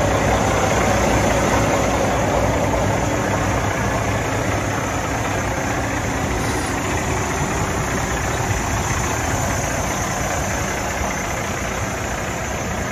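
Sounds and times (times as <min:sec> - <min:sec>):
truck diesel engine idling: 0:00.0 - 0:12.9.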